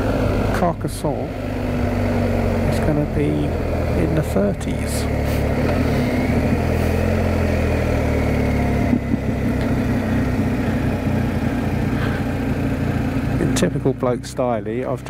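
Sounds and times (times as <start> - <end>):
wind and road noise hiss: 0.0 - 12.9
motorcycle engine slowing: 0.0 - 15.0.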